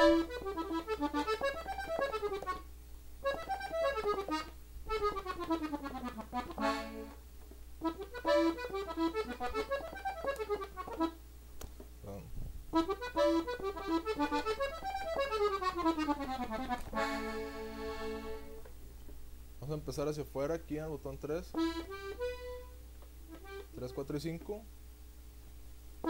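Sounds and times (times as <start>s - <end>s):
button accordion note runs: 0.0s - 7.2s, 7.8s - 11.2s, 12.8s - 18.6s, 21.5s - 24.5s.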